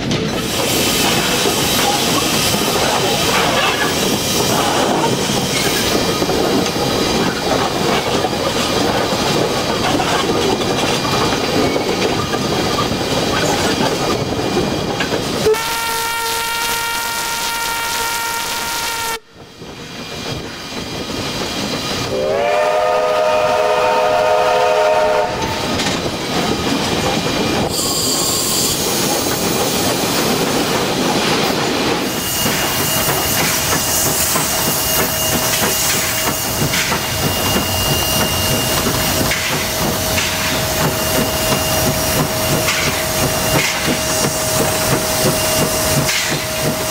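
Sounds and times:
wheels clicking over rail joints: 0:00.0 - 0:15.4, 0:28.7 - 0:46.9
steam hissing: 0:00.0 - 0:15.6, 0:19.6 - 0:46.9
steam locomotive running: 0:00.0 - 0:46.9
chord steam whistle: 0:15.4 - 0:19.3, 0:22.1 - 0:25.6
single-note steam whistle: 0:15.4 - 0:19.3, 0:22.1 - 0:25.6.

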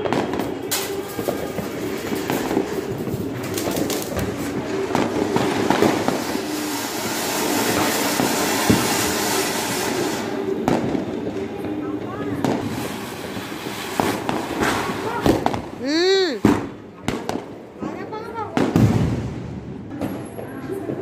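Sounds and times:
fountain firework hissing and crackling: 0:00.0 - 0:19.5
firecrackers popping: 0:00.0 - 0:21.0.

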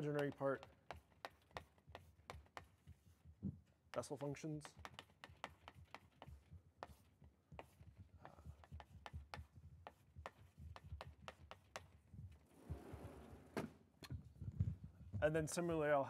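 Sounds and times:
chalk tapping on blackboard: 0:00.0 - 0:03.3, 0:03.9 - 0:12.1.

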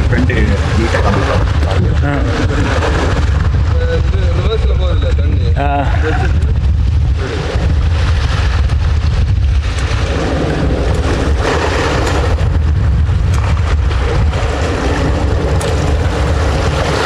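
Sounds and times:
boat engine humming: 0:00.0 - 0:03.8
wind buffeting microphone: 0:00.0 - 0:17.0.

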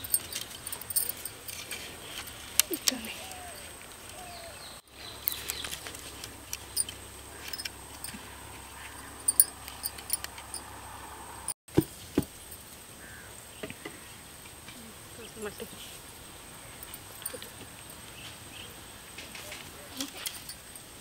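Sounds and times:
wire scraping on bamboo: 0:00.0 - 0:04.2, 0:05.2 - 0:10.8.

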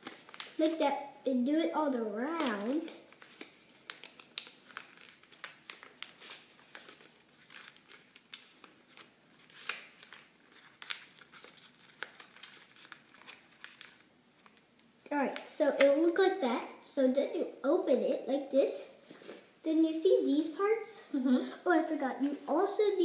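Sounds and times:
paper being folded and creased: 0:00.0 - 0:00.8, 0:02.0 - 0:14.6.

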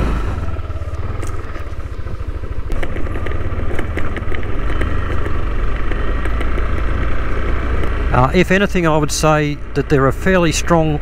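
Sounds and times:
scooter engine running: 0:00.0 - 0:11.0.

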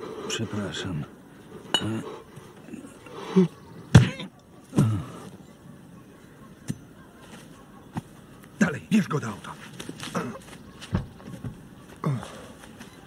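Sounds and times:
men grunting and groaning: 0:04.7 - 0:05.3, 0:10.0 - 0:10.5, 0:12.0 - 0:12.6.

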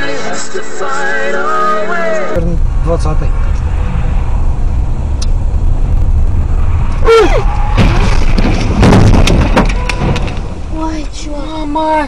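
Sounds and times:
car road and engine rumble: 0:01.4 - 0:12.0
car collision bangs and crunching: 0:07.5 - 0:10.7.

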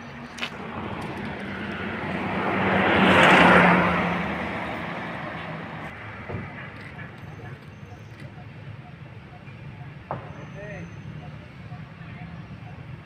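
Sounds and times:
vehicle driving past: 0:00.6 - 0:06.8.

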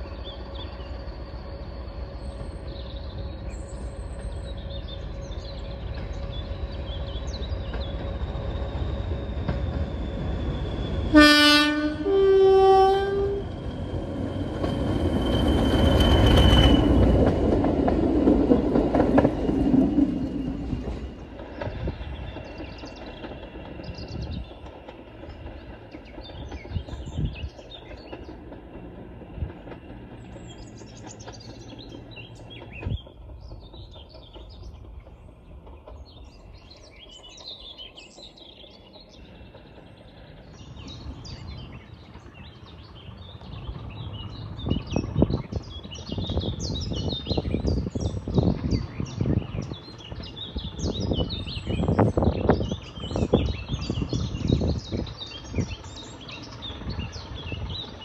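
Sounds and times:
songbirds chirping: 0:00.0 - 0:11.2, 0:13.4 - 0:58.0
diesel train rumble: 0:00.0 - 0:58.0
low rumbling buffets: 0:39.2 - 0:58.0.

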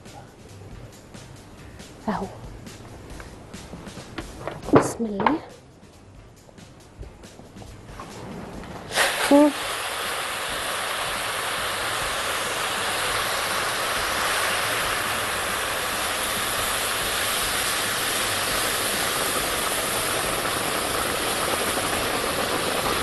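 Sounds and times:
boiling water pouring: 0:08.0 - 0:23.0.

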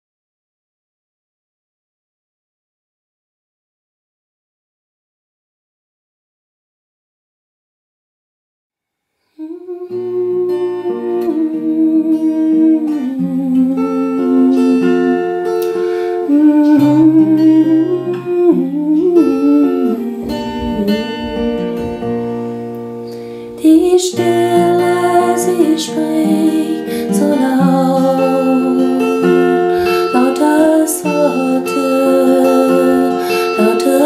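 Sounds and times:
woman humming: 0:09.4 - 0:22.4, 0:23.6 - 0:34.0
woman singing: 0:09.4 - 0:22.4, 0:23.5 - 0:34.0
acoustic guitar chords: 0:09.4 - 0:34.0.

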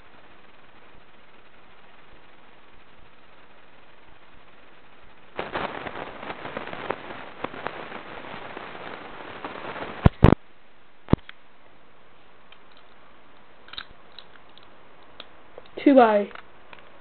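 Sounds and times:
plastic bricks clicking together: 0:12.5 - 0:13.0, 0:13.7 - 0:16.5.

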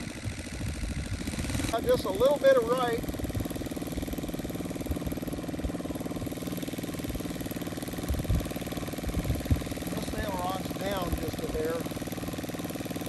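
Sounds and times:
model airplane engine idling: 0:00.0 - 0:13.0.

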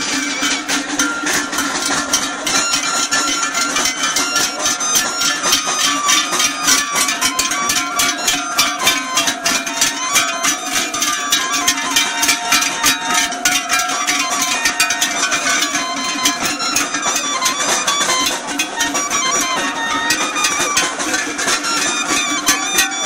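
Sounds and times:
cowbells clanking: 0:00.0 - 0:23.0
folk tune over a drone: 0:00.0 - 0:23.0.

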